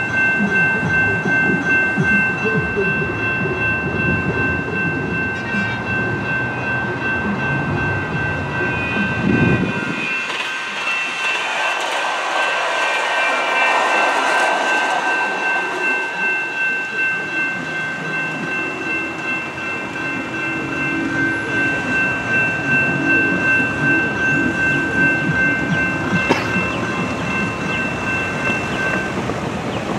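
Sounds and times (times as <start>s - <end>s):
electronic crossing bells ringing: 0.0s - 29.9s
light rail train passing: 0.0s - 29.9s.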